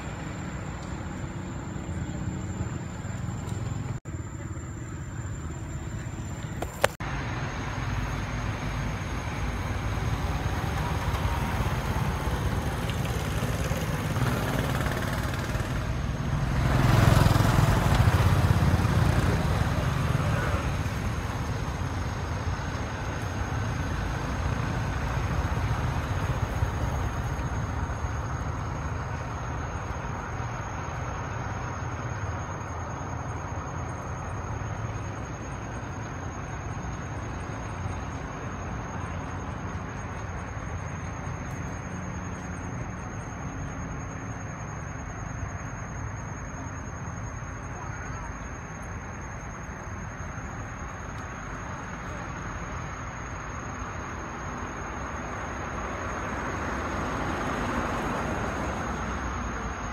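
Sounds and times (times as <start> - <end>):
road traffic rumble: 0.0 - 59.9
vehicle passing: 7.0 - 32.3.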